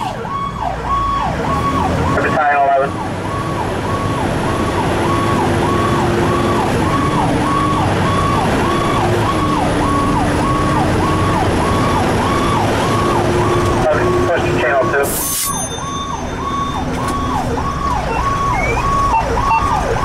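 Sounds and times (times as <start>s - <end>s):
engine and road noise: 0.0s - 20.0s
fire engine siren sweeping: 0.0s - 20.0s.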